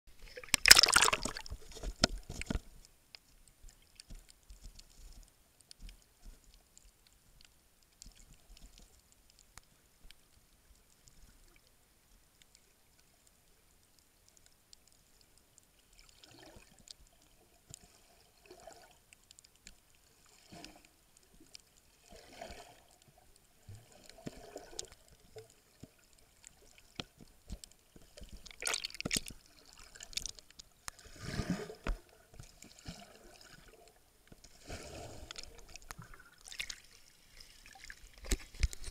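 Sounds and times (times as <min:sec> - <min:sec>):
muffled underwater sloshing and gurgling: 0:20.1 - 0:38.9.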